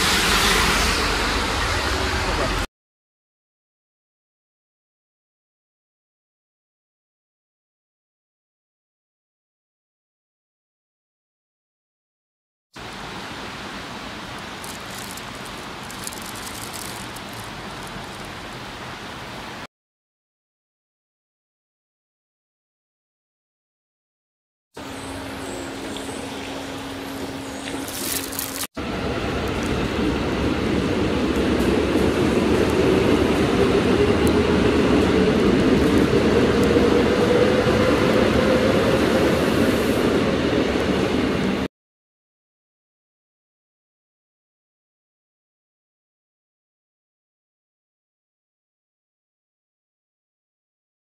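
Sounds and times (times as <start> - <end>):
train wheels rumbling on rail: 0.0 - 2.7, 24.8 - 41.7
steady rain: 12.8 - 19.7, 27.8 - 41.7.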